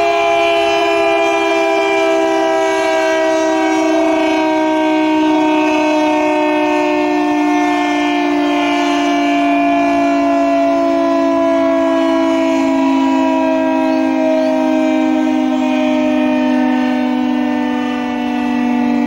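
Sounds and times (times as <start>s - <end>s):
air raid siren two-tone chord: 0.0s - 19.0s.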